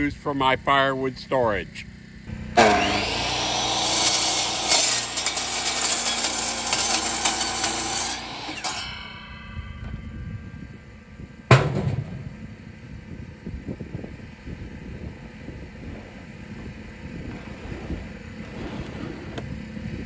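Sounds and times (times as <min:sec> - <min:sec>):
miter saw blade whining: 0:02.3 - 0:11.5.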